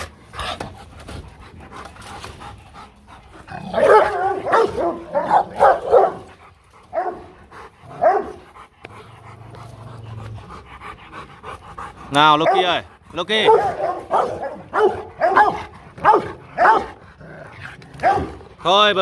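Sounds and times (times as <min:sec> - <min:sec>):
dog barking deeply: 0:03.5 - 0:06.3, 0:06.9 - 0:08.5, 0:12.2 - 0:17.0, 0:18.0 - 0:18.5.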